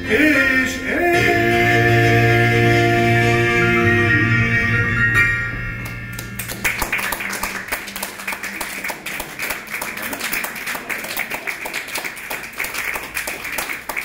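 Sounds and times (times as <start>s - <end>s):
piano chord: 0.0s - 8.5s
audience applauding: 5.8s - 14.0s.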